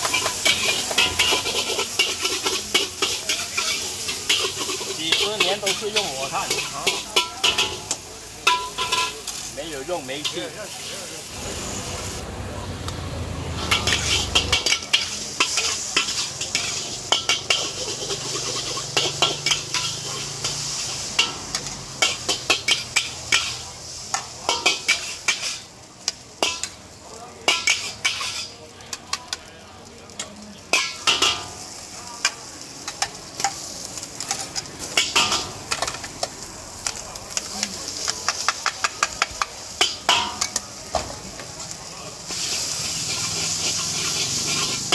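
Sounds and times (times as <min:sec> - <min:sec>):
metal spatula scraping a wok: 0:00.0 - 0:12.2, 0:13.5 - 0:25.8, 0:27.5 - 0:28.6, 0:32.8 - 0:36.4, 0:42.2 - 0:44.9
oil sizzling: 0:00.0 - 0:44.9.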